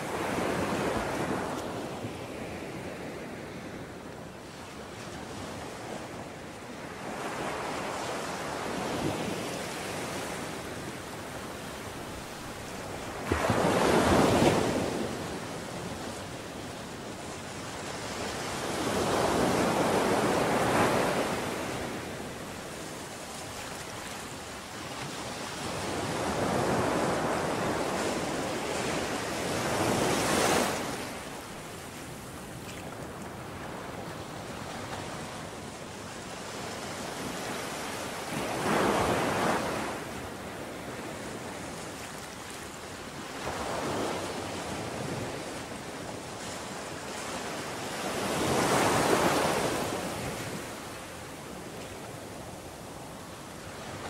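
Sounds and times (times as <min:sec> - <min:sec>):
sea waves breaking on beach: 0:05.1 - 0:54.0.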